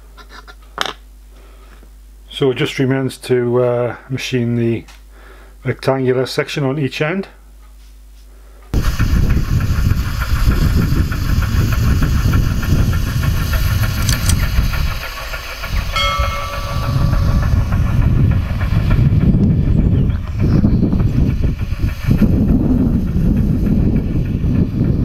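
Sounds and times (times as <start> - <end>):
wind buffeting microphone: 8.8 - 25.0.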